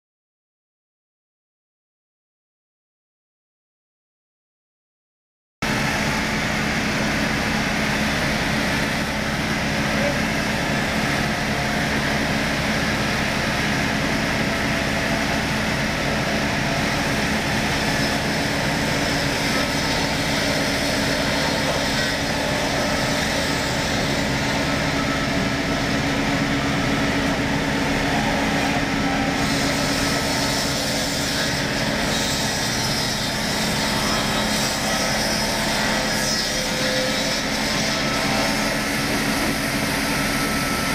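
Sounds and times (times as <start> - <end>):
circular saw ripping timber: 8.1 - 25.8, 28.8 - 40.8.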